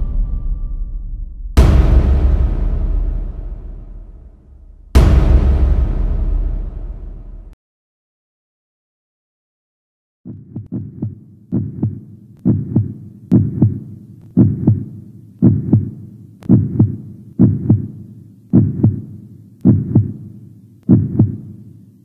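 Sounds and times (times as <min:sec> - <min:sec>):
heartbeat thumps: 0:10.3 - 0:21.6.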